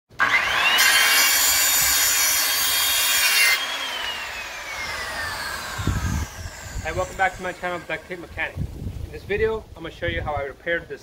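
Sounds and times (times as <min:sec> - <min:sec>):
circular saw cutting wood: 0:00.1 - 0:08.5
saw motor whine spinning down: 0:00.2 - 0:08.4.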